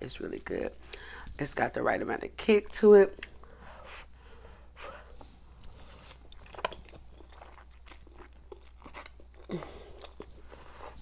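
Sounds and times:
chewing and slurping noodles: 0:05.0 - 0:11.0.

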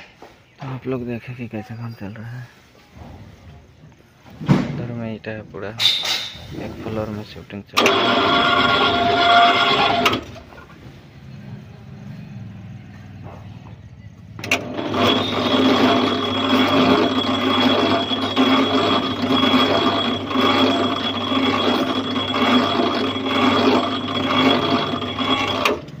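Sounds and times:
hoist motor whining: 0:07.7 - 0:10.6, 0:14.4 - 0:26.0.

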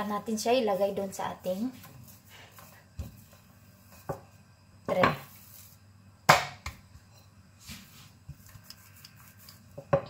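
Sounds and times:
rolling pin thumping dough: 0:06.3 - 0:06.8
rolling pin knocking on countertop: 0:09.8 - 0:10.0.

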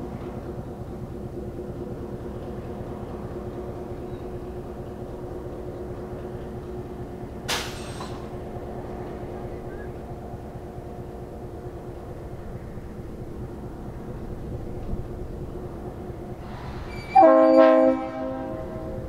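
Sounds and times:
diesel locomotive idling: 0:00.0 - 0:19.0
air release blast: 0:07.5 - 0:08.2.

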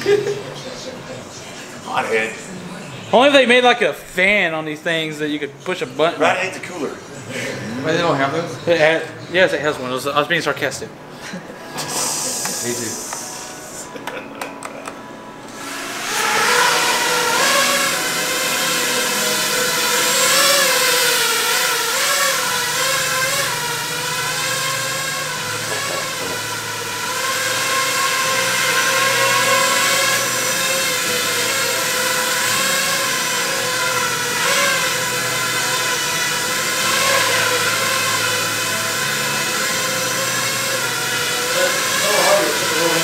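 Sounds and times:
drone motors whining: 0:15.4 - 0:43.0.

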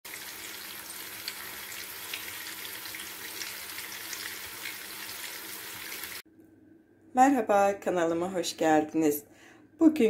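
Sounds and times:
patties sizzling in oil: 0:00.1 - 0:06.2.

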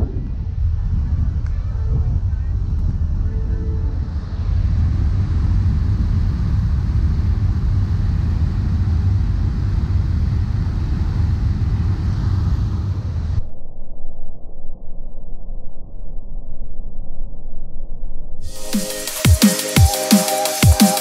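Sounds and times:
ferry engine rumble: 0:00.0 - 0:13.5.

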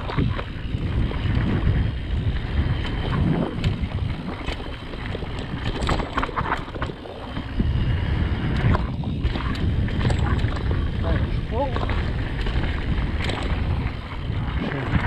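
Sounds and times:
bike clicks and rattles: 0:00.0 - 0:15.0
wind buffeting microphone: 0:00.0 - 0:15.0.

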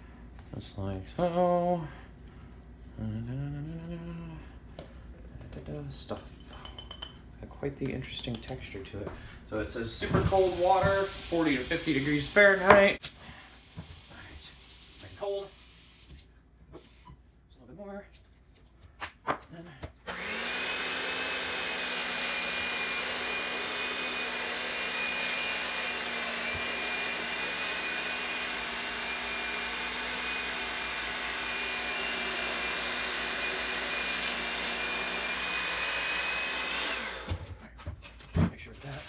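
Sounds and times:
electric hand mixer whining: 0:10.1 - 0:13.0, 0:20.1 - 0:37.5.

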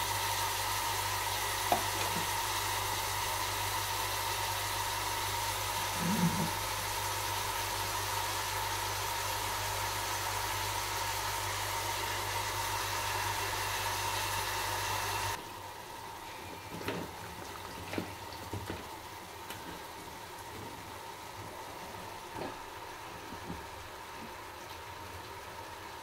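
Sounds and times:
hiss: 0:00.0 - 0:15.4
mechanical hum: 0:00.0 - 0:26.0.

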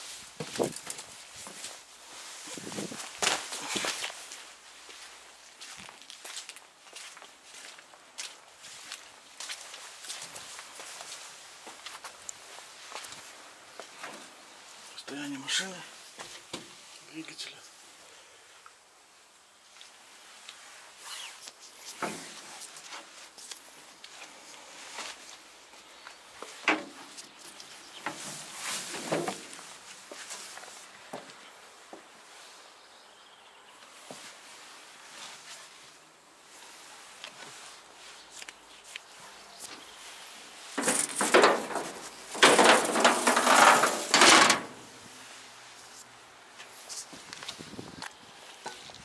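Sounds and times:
footsteps: 0:00.0 - 0:14.4, 0:36.6 - 0:47.8
sheet metal scraping and rattling: 0:40.8 - 0:44.8.

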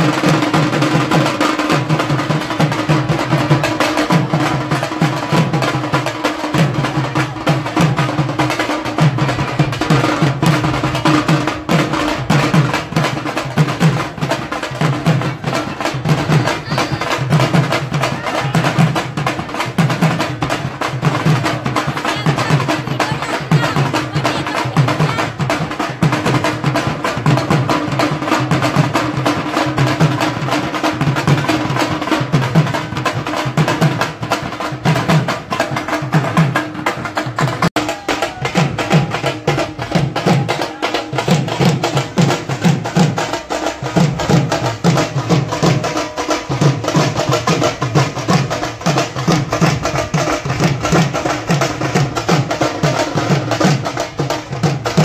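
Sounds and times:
drums beaten with sticks: 0:00.0 - 0:55.0.

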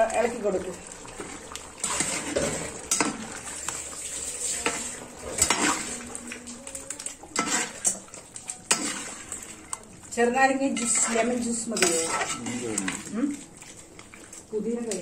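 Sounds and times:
metal ladle scraping a pot: 0:01.8 - 0:06.2, 0:07.0 - 0:09.9, 0:10.6 - 0:13.8.

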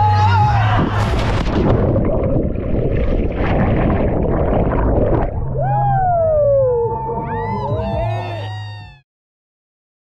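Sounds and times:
water splashing and churning: 0:00.6 - 0:06.8
water bubbling: 0:00.8 - 0:07.8.

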